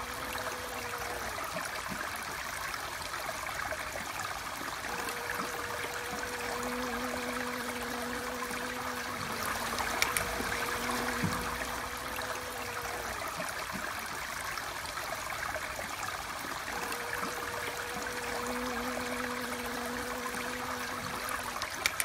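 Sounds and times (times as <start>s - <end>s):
bee wing buzz: 0.0s - 2.0s, 4.8s - 13.9s, 16.6s - 22.0s
sharp ticks: 9.4s - 11.4s, 20.5s - 22.0s.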